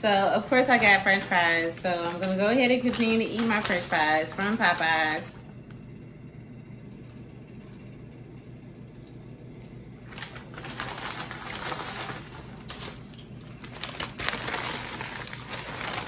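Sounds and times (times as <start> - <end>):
refrigerator hum: 0.0 - 16.0
paper bag rustling and crinkling: 0.1 - 5.4, 10.0 - 16.0.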